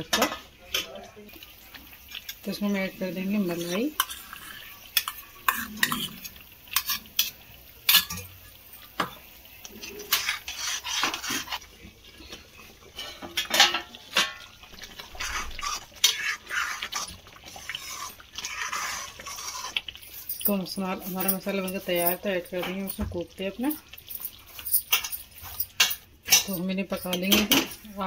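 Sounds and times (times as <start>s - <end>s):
metal spoon scraping steel bowl: 3.4s - 8.3s, 9.8s - 11.6s, 15.1s - 23.0s.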